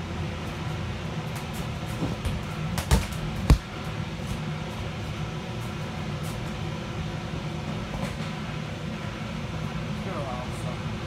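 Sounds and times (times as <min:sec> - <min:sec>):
blower fan humming: 0:00.0 - 0:11.0
feet thumping on inflated floor: 0:02.0 - 0:03.7.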